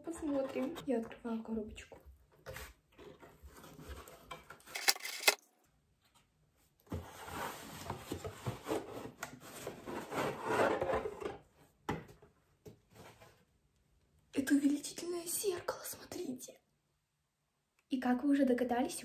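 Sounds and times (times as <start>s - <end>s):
packaging rubbing and scraping: 3.5s - 5.4s
packaging rustling: 4.7s - 5.4s.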